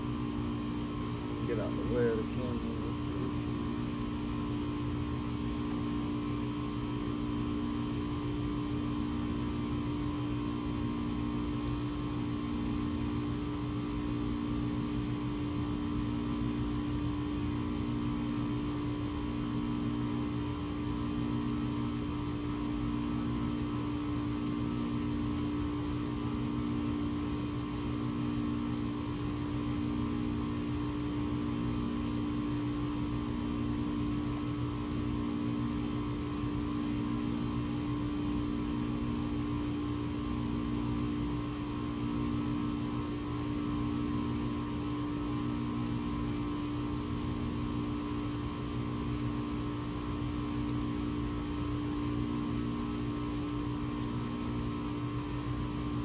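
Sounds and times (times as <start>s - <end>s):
steady mechanical hum: 0.0s - 56.0s.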